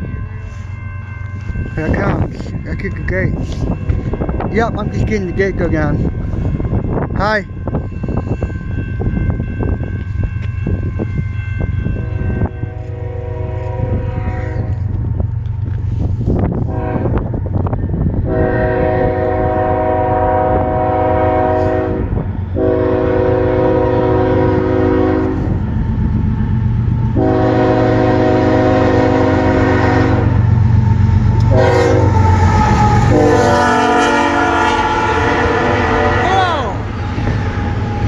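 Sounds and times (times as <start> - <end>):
train rumbling: 0.0 - 38.0
train horn blasts: 11.7 - 14.9, 16.6 - 17.3, 18.2 - 25.6, 27.2 - 30.5, 31.4 - 36.8.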